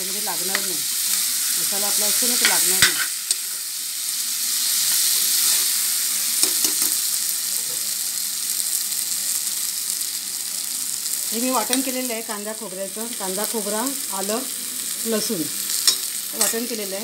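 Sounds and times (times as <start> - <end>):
food sizzling in oil: 0.0 - 17.0
spoon scraping against pan: 2.2 - 3.7.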